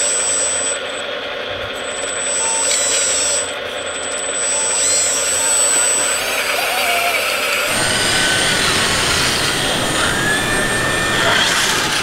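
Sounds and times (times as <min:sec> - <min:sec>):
mechanical whir of model pump: 0:01.7 - 0:12.0
high thin whine: 0:07.7 - 0:12.0.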